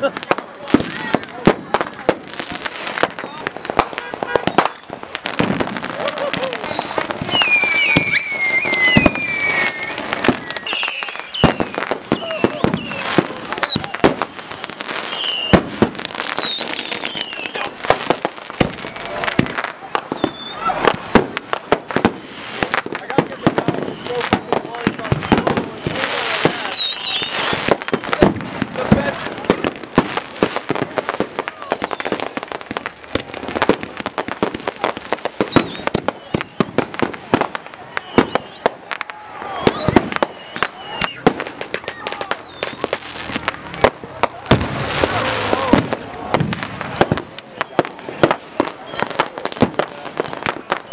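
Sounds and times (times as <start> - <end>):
fireworks bangs and crackles: 0.0 - 50.9
fireworks whistles falling in pitch: 3.0 - 21.0, 22.6 - 46.0, 47.0 - 50.9.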